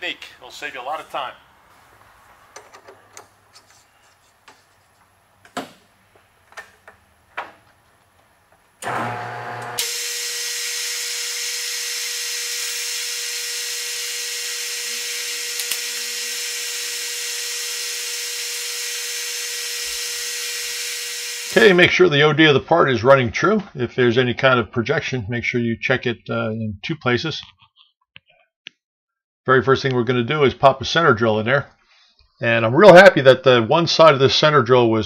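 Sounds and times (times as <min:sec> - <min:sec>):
lathe whine: 0:08.8 - 0:21.6.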